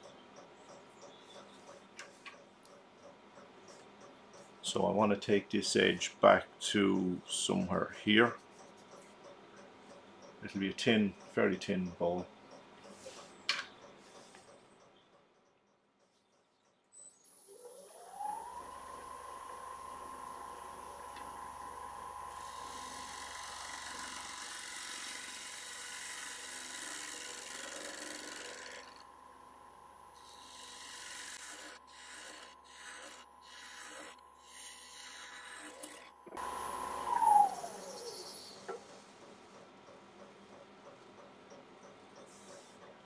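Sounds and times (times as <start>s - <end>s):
lathe motor whine: 17.4s - 29.1s, 30.2s - 38.7s
gouge cutting wood hiss: 30.2s - 36.0s.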